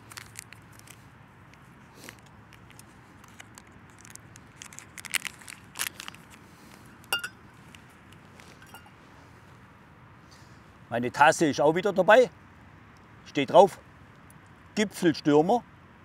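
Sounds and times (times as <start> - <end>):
rustling: 0.0 - 9.6
metallic clink: 7.1 - 7.4, 8.6 - 9.0.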